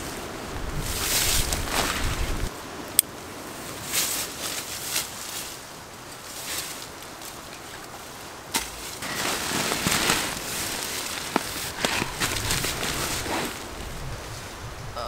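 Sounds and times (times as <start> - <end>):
rustling in dry leaves: 0.0 - 14.9
camping gear handled: 6.4 - 14.0
short crackles: 8.6 - 13.9.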